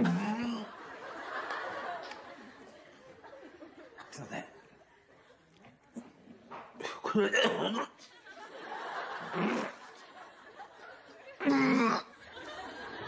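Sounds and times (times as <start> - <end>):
man retching and gagging: 0.0 - 0.7, 6.8 - 8.0, 9.2 - 9.8, 11.4 - 12.1
people laughing: 0.0 - 6.2, 7.1 - 13.0.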